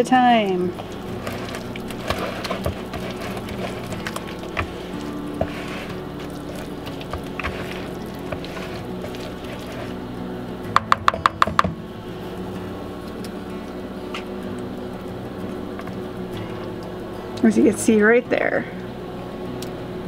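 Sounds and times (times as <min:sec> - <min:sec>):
spoon stirring thick filling: 0:00.5 - 0:10.1.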